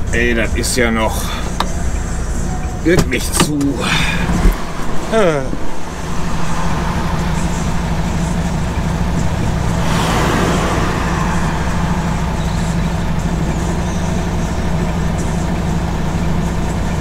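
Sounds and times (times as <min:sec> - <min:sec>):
brief rush of noise: 0:09.7 - 0:14.0.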